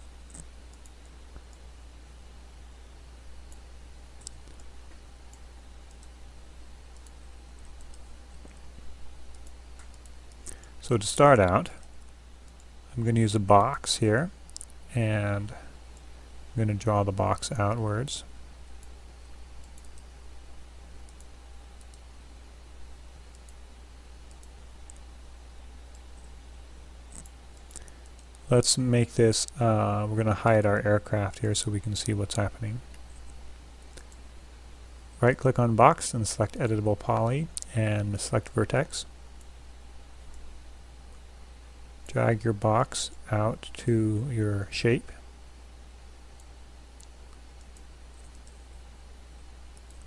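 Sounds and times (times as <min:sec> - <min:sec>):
steady low hum: 0:00.0 - 0:50.0
computer mouse clicks: 0:00.3 - 0:01.6, 0:04.2 - 0:06.2, 0:06.9 - 0:08.6, 0:09.3 - 0:10.7, 0:14.5 - 0:14.8, 0:19.6 - 0:20.1, 0:21.0 - 0:22.0, 0:23.3 - 0:23.6, 0:24.2 - 0:25.1, 0:27.1 - 0:28.4, 0:46.4 - 0:48.7, 0:49.8 - 0:50.0.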